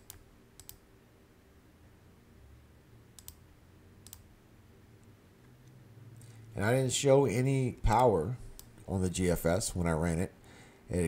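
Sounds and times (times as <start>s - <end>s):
computer mouse clicking: 0.0s - 0.8s, 3.2s - 3.4s, 4.0s - 4.3s
faint low hum: 0.0s - 11.0s.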